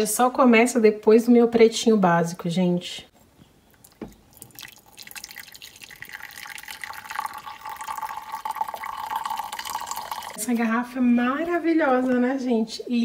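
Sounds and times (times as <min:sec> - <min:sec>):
liquid pouring into mug: 0:03.8 - 0:10.4.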